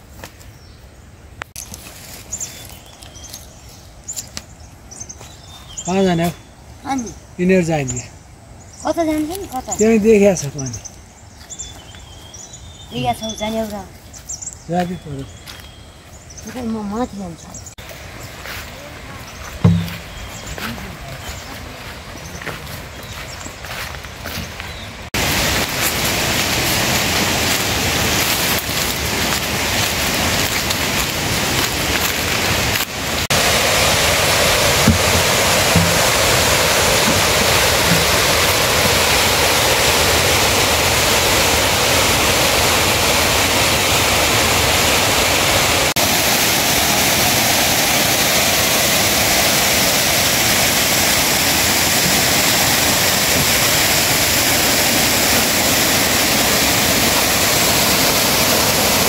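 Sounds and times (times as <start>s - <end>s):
water rushing: 17.7s - 59.0s.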